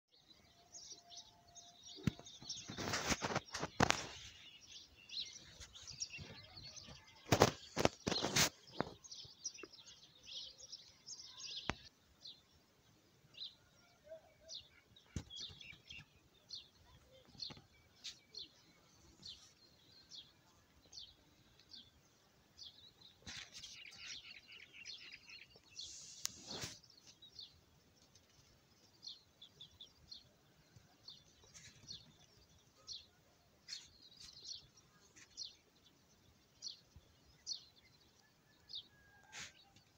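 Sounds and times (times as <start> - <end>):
small birds chirping: 0.1 - 39.9
rushing rustling noise: 2.6 - 4.5, 7.2 - 9.0.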